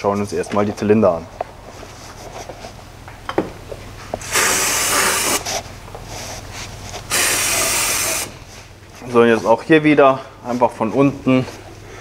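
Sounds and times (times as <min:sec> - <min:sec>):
aerosol spray hissing: 0:04.2 - 0:05.6, 0:07.1 - 0:08.4.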